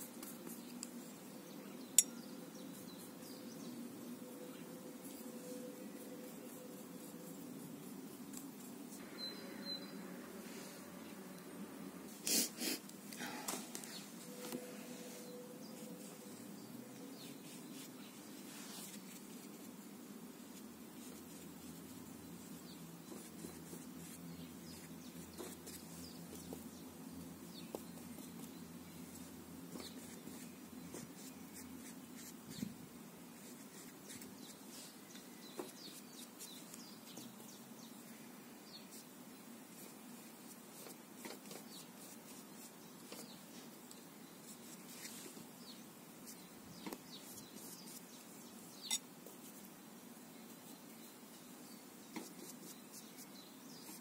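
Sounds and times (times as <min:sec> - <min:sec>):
faint bird chirps: 0:09.0 - 0:11.5, 0:44.2 - 0:49.6.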